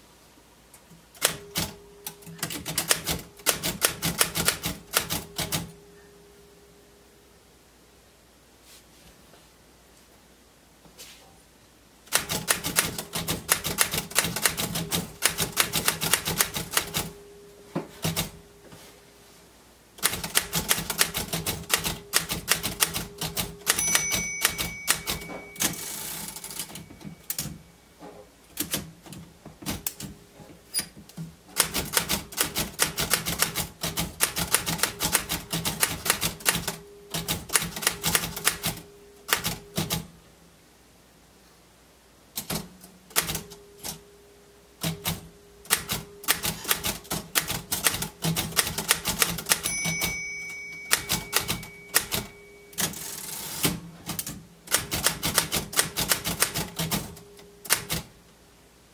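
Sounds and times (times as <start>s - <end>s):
typewriter keys clacking: 1.2s - 5.7s, 12.1s - 17.1s, 18.0s - 18.4s, 20.0s - 27.6s, 31.6s - 40.1s, 44.8s - 58.1s
typewriter bell ring: 20.4s - 27.7s, 48.9s - 53.6s.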